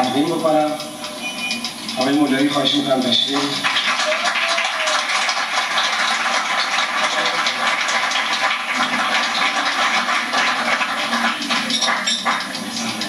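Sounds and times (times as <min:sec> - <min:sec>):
audience applauding: 0:03.3 - 0:13.0.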